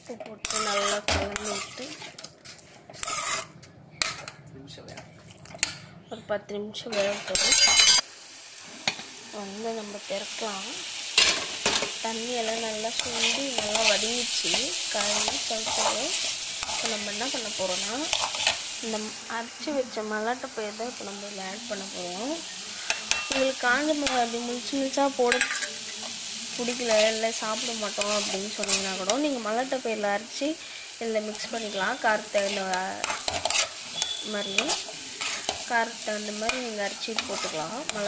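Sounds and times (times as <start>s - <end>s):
vegetables sizzling in a pan: 0.0s - 4.2s, 6.7s - 38.0s
metal spatula scraping a pan: 0.2s - 4.4s, 6.8s - 8.0s, 11.2s - 19.0s, 22.4s - 29.4s, 30.6s - 38.0s.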